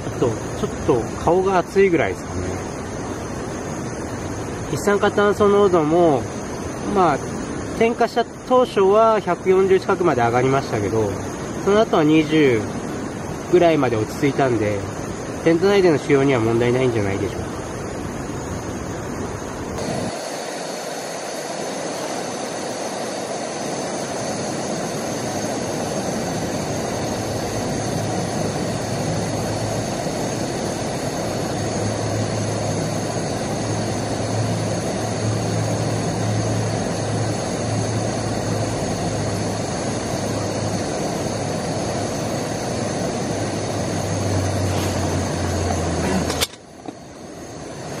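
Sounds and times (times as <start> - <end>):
camping stove burner rushing: 0.0 - 48.0.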